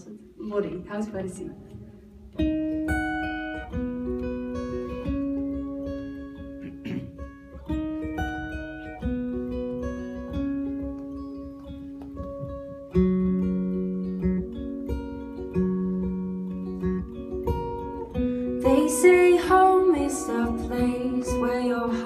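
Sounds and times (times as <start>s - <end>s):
acoustic guitar picking: 1.6s - 22.0s
woman singing: 18.5s - 22.0s.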